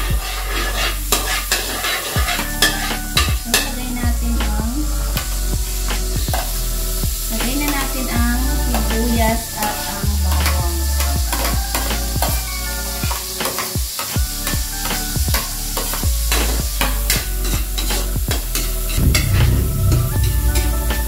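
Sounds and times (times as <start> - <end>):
background music: 0.0 - 21.0
onion sizzling in a wok: 0.0 - 21.0
metal spoon scraping and clinking: 0.4 - 3.7.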